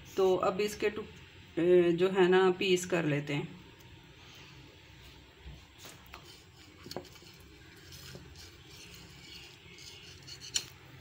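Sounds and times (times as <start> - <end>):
spatula scraping: 5.7 - 11.0.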